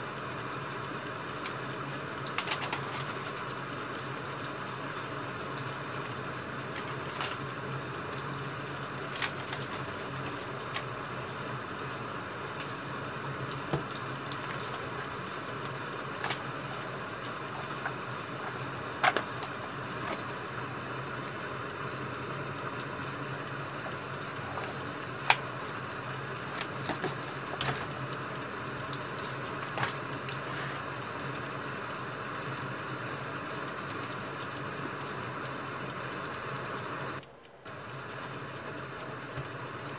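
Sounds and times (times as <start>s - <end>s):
wood fire crackling and hissing: 0.0s - 39.9s
fire popping and snapping: 5.6s - 20.6s, 23.7s - 30.6s.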